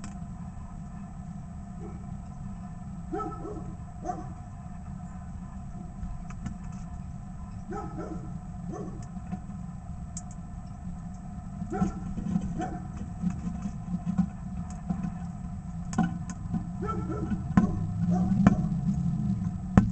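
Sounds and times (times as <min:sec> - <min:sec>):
engine running low rumble: 0:00.0 - 0:19.9
dog barking: 0:01.8 - 0:02.1, 0:03.1 - 0:04.4, 0:07.7 - 0:09.0, 0:11.7 - 0:12.9, 0:16.8 - 0:18.7.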